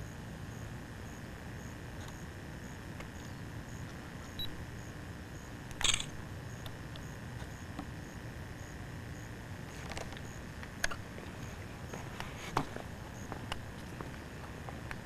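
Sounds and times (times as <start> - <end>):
low hum: 0.0 - 15.0
small click: 5.7 - 6.8.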